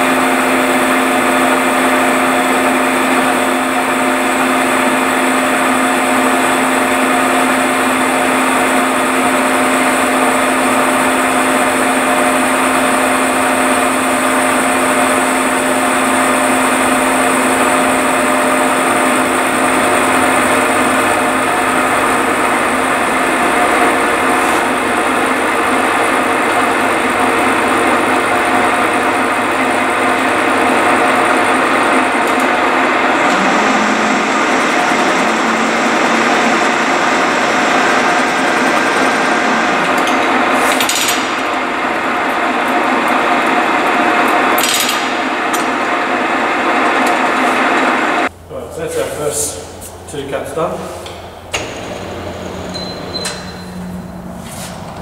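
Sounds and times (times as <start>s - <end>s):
gear whine: 14.2s - 45.9s
milling machine cutting metal: 14.5s - 48.0s.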